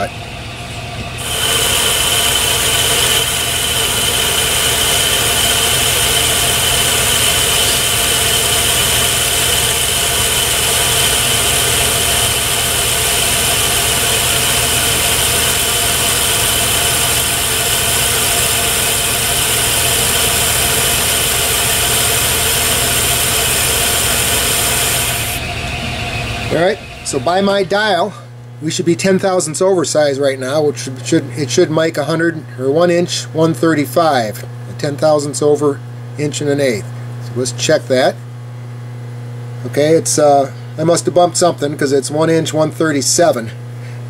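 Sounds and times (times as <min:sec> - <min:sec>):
metal lathe drone: 0:00.0 - 0:28.2
high whine: 0:00.0 - 0:33.0.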